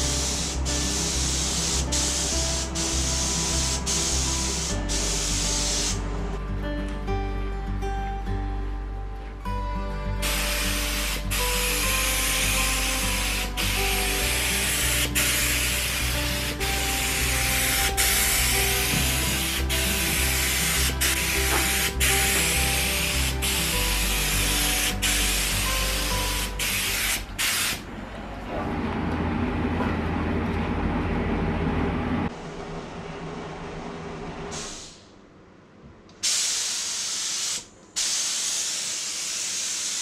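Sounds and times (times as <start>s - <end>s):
spray gun hissing: 0.0s - 6.0s, 10.2s - 27.8s, 36.2s - 40.0s
background music: 0.0s - 27.8s.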